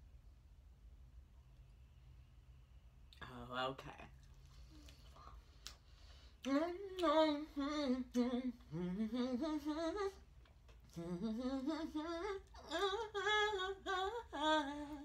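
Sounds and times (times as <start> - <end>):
woman humming a tune: 10.9 - 15.0.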